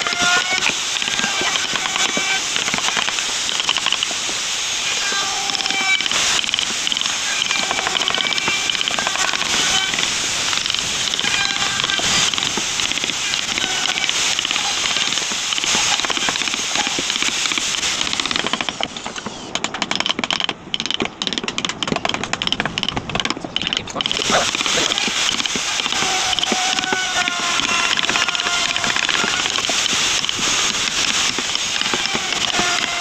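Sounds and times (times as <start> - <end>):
steady hiss: 0.0 - 21.2, 21.8 - 33.0.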